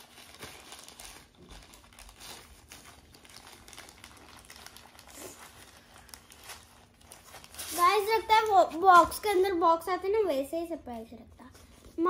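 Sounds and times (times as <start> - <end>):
plastic pouch crinkling: 0.0 - 8.6.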